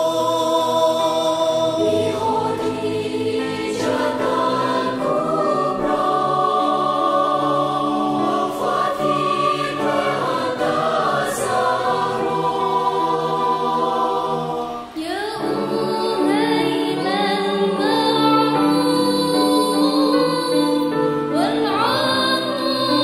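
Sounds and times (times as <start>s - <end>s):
choir singing in harmony: 0.0s - 23.0s
female soloist singing: 14.8s - 23.0s.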